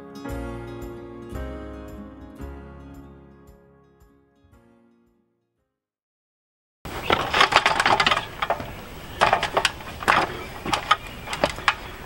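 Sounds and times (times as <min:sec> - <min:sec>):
clicks and metallic clatter: 0:06.9 - 0:12.0.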